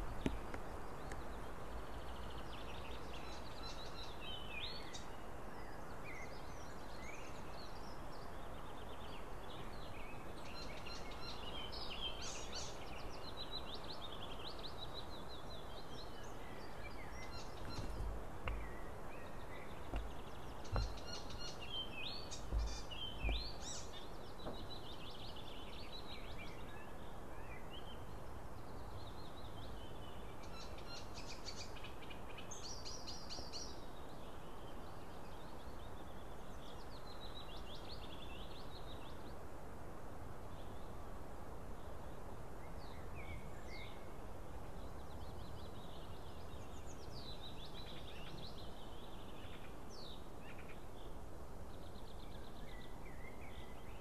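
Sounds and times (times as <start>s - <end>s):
background hiss: 0.0s - 54.0s
small birds singing: 0.0s - 54.0s
low thumps: 17.6s - 18.8s, 19.8s - 21.5s, 22.3s - 23.7s.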